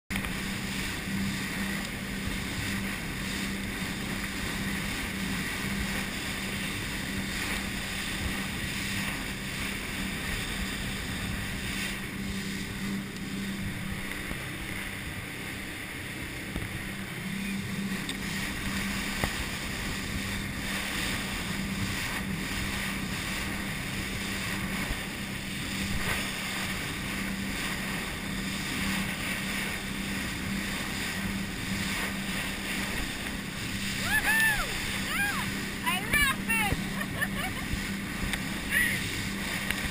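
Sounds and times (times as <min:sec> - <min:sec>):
motorboat engine drone: 0:00.1 - 0:39.9
water spraying along hull: 0:00.1 - 0:39.9.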